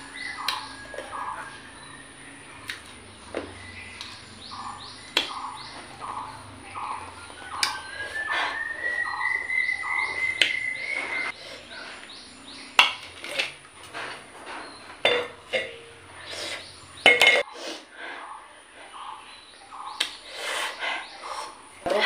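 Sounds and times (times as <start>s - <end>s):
thin rising whistle: 7.2s - 11.3s
plate and grapes clinking: 12.8s - 16.1s, 17.0s - 17.5s.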